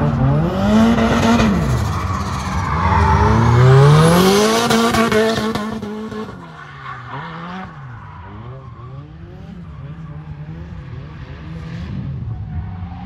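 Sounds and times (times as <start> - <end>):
car engine revving: 0.0 - 13.0
tyres screeching: 1.5 - 5.6.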